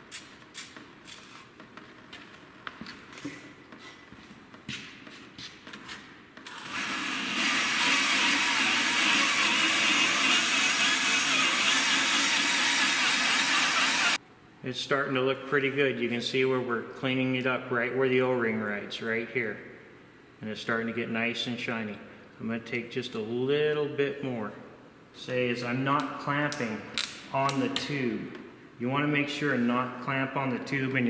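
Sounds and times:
drill spinning hone on steel: 6.5 - 14.2.

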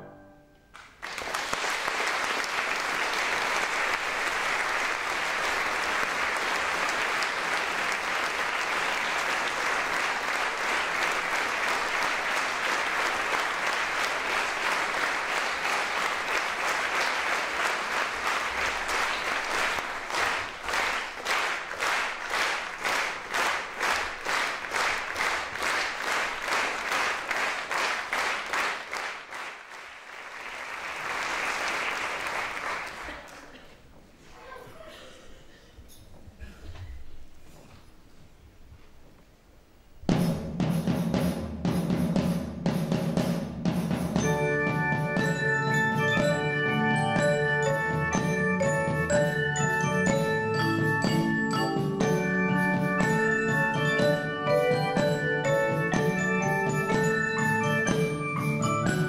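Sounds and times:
rhythmic clapping in unison: 0.7 - 33.4, 40.2 - 59.0
audience applauding: 0.7 - 33.9.

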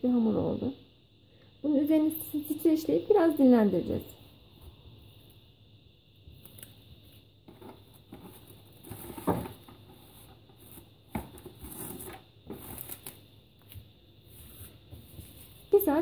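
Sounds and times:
cling film crinkling: 11.6 - 13.8.

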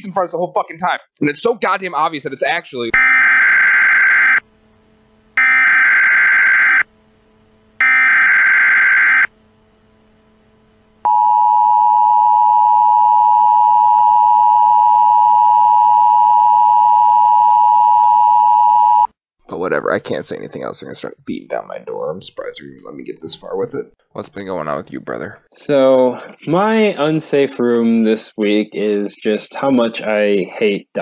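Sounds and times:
steady high telephone tone: 5.4 - 6.9, 7.8 - 9.4, 11.0 - 19.2
telephone line beeps: 11.1 - 19.1.

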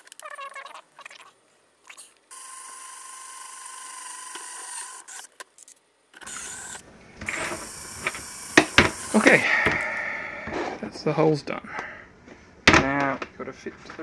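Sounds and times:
power drill boring plastic: 2.3 - 5.3, 6.2 - 9.5.

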